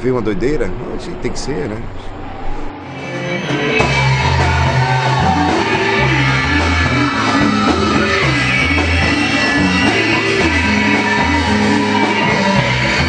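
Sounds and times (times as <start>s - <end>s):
loud rock band music: 2.8s - 13.0s.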